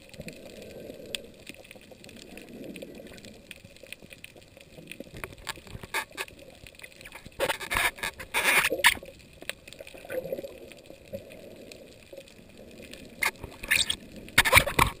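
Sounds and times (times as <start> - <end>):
faint clicks underwater: 0.0 - 15.0
muffled underwater background: 13.2 - 15.0.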